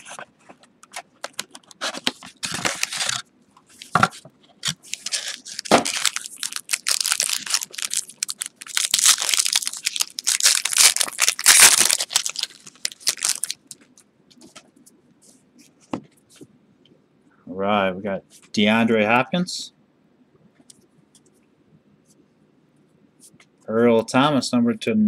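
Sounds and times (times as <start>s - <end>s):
plastic and foil wrapper crinkling: 0.8s - 14.0s.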